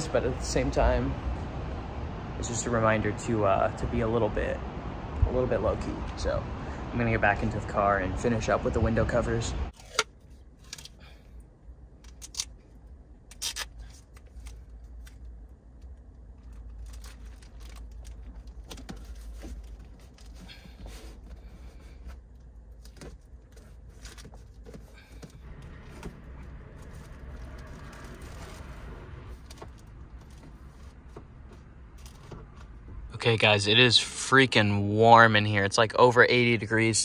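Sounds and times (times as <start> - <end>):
plastic bags rustling: 16.4 - 22.0, 23.3 - 31.1.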